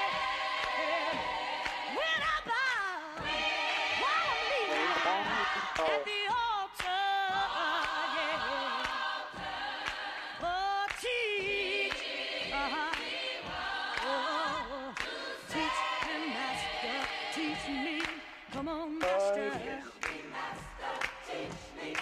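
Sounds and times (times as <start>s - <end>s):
gospel singing: 0.0s - 22.0s.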